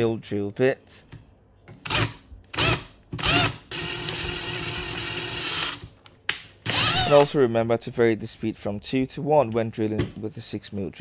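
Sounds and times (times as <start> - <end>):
power drill drilling through steel: 6.7 - 7.2.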